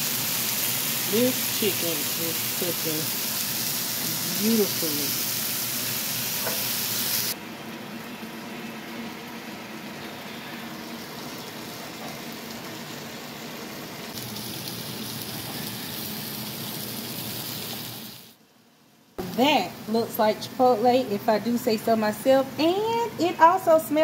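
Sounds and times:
meat sizzling in oil: 0.0 - 7.4, 10.9 - 18.4.

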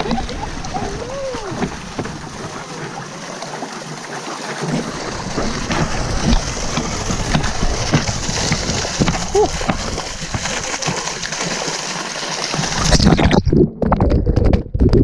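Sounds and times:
water splashing and sloshing: 0.0 - 15.0.

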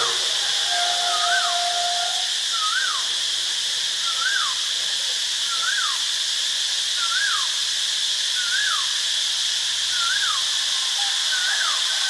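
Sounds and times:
bird whistling: 0.0 - 3.0, 4.0 - 4.6, 7.0 - 7.5, 8.4 - 8.9, 9.9 - 10.4
cicada buzzing: 0.0 - 12.0.

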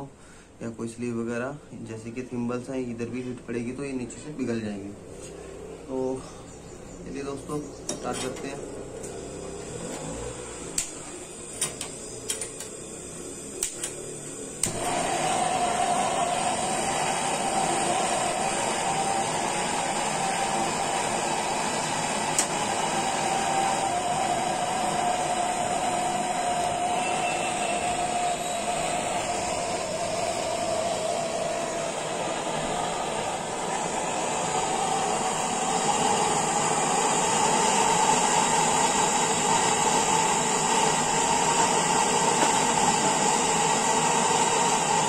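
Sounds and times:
gas torch hissing: 0.0 - 45.0
torch igniter clicks: 10.7 - 15.0, 21.8 - 22.8.

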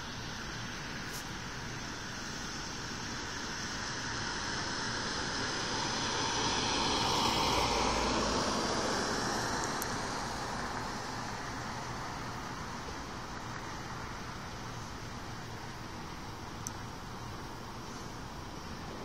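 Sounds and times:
vehicle passing: 5.8 - 11.4.

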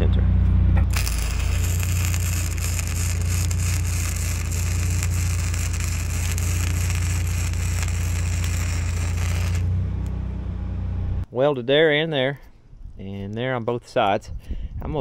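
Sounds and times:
low machine hum: 0.0 - 11.3
arc welding crackle: 0.8 - 10.1.

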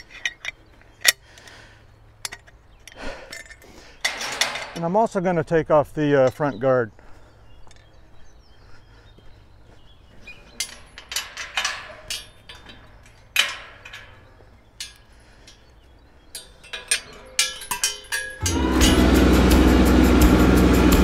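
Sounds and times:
metal clinking and scraping: 0.0 - 1.2, 2.2 - 4.8, 10.4 - 20.3
quick metal clanks: 10.6 - 15.7, 16.3 - 19.0.

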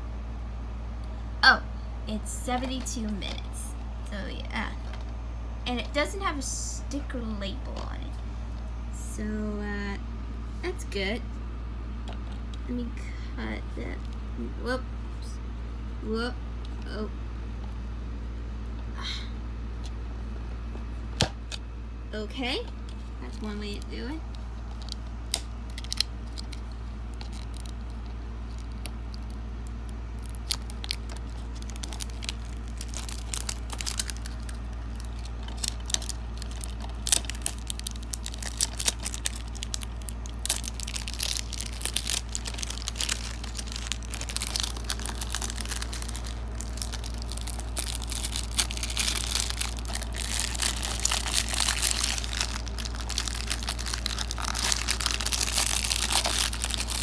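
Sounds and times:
plastic shrink wrap crinkling: 22.8 - 57.0.

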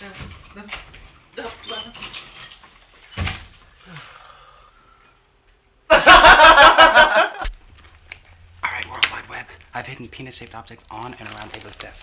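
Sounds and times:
loud burst of laughter: 5.9 - 7.4.

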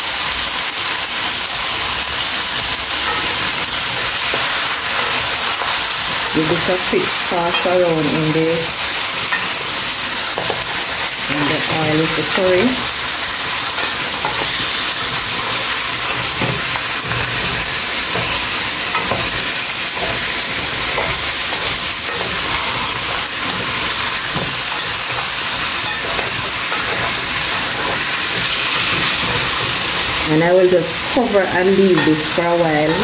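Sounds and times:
meat sizzling in oil: 0.0 - 33.0.

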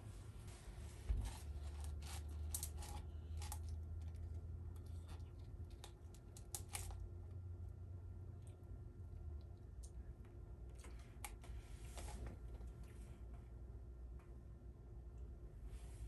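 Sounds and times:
steady low hum: 0.0 - 16.0
spoon scraping plastic cup: 1.2 - 3.7.

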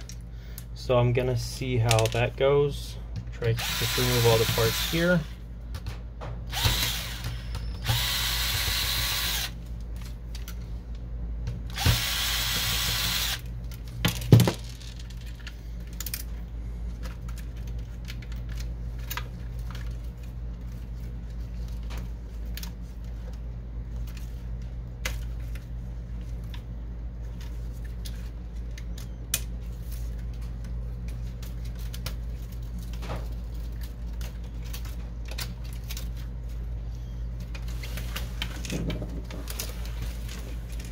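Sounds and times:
powered screwdriver whirring: 3.6 - 5.3, 6.5 - 9.6, 11.8 - 13.4.

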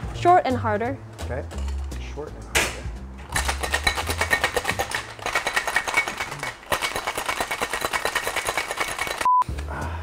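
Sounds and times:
ice rattling in metal cocktail shaker: 3.2 - 9.3.

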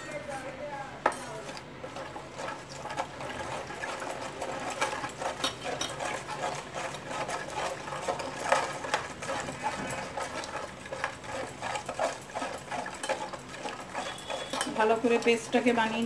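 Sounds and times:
spoon scraping steel box: 1.1 - 16.0
spoon clinking on steel: 14.0 - 15.2.

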